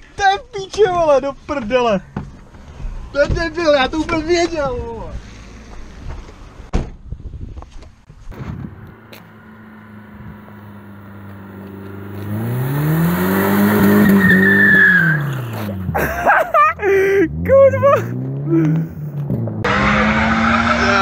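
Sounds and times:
car engine revving: 0:08.1 - 0:21.0
tyre squeal: 0:13.2 - 0:15.9.

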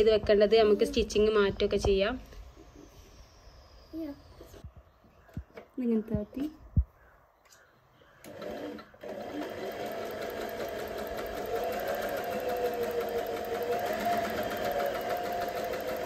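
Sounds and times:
sewing machine stitching: 0:08.2 - 0:16.0.

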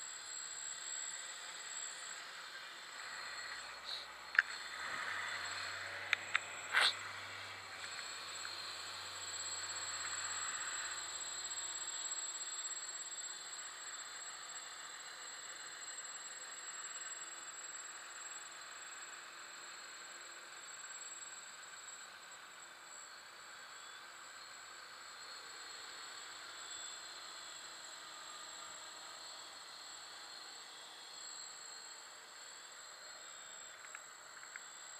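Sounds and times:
distant drone motors whirring: 0:00.3 - 0:15.9.

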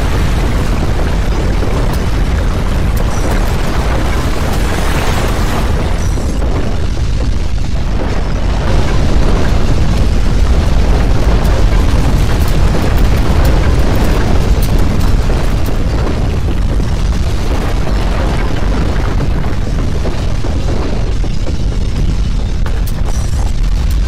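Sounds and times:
deep rumble with crackling: 0:00.0 - 0:24.0.

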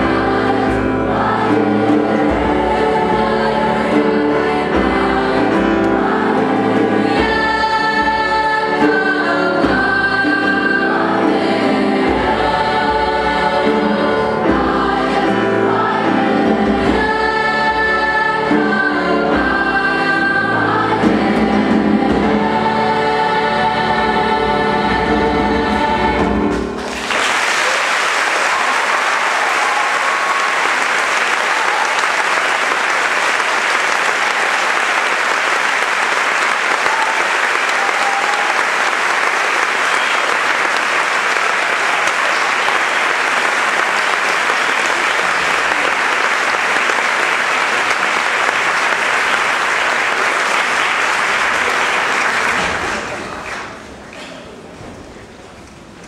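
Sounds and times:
children's choir singing: 0:00.0 - 0:55.5
audience applauding: 0:26.8 - 0:54.5.

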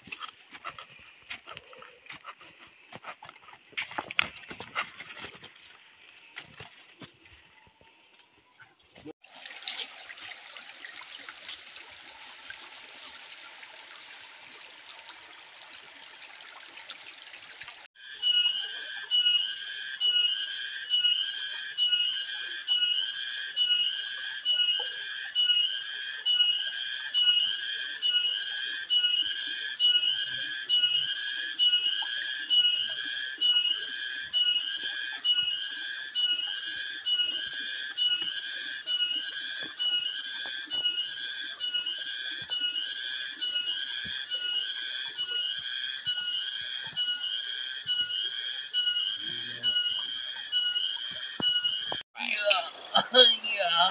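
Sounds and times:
cicada pulsing song: 0:00.0 - 0:08.8, 0:18.0 - 0:53.9
stream water trickling: 0:09.2 - 0:17.9, 0:31.7 - 0:47.3.

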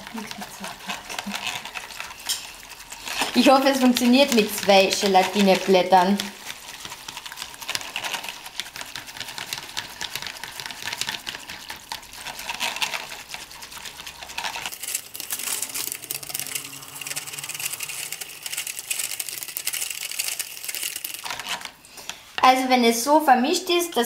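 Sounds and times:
whisk clicking against bowl: 0:00.0 - 0:14.7.

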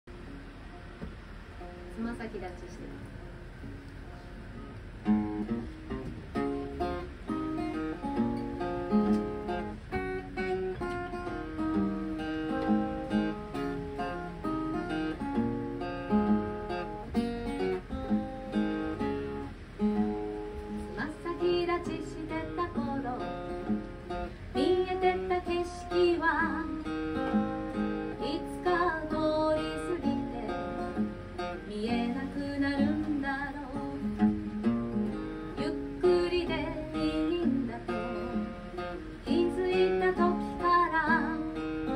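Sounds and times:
acoustic guitar strumming: 0:00.1 - 0:41.9
woman singing: 0:20.8 - 0:23.8, 0:24.5 - 0:34.3, 0:35.5 - 0:41.9.

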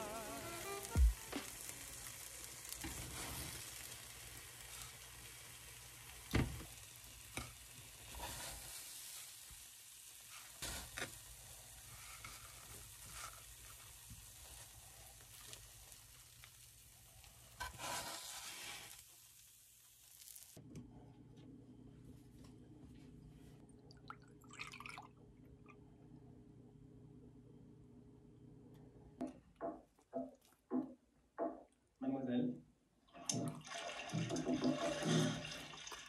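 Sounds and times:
food sizzling in a frying pan: 0:00.0 - 0:20.6.

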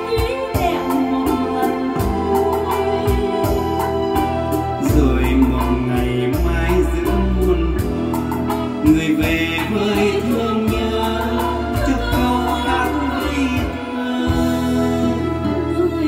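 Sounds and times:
person singing: 0:00.0 - 0:16.0
steady bass: 0:00.0 - 0:16.0.

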